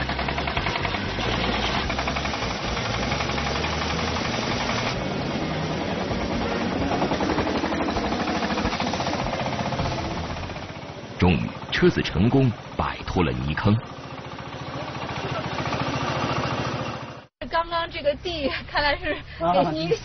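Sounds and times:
engine running hard knocking: 0.0 - 17.3.

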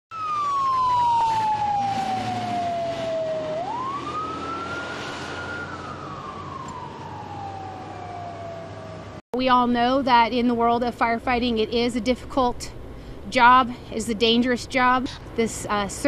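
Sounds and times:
fire engine siren wailing: 0.1 - 9.2.

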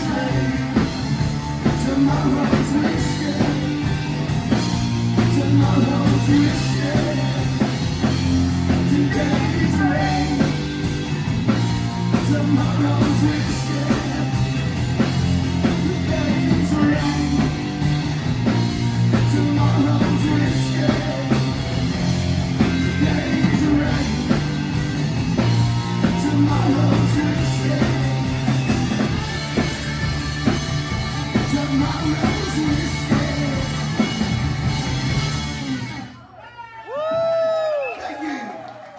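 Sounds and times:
distorted electric guitars: 0.0 - 36.2
drum kit: 0.0 - 36.2
electric bass: 0.0 - 36.2.

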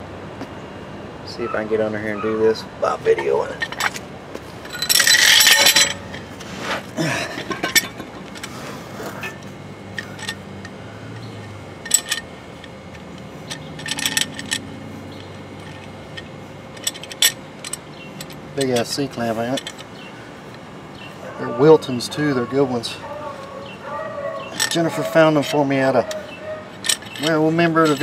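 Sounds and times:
metal clamp clinking and rattling: 3.1 - 4.0, 4.6 - 6.5, 7.3 - 21.1, 23.0 - 28.0.

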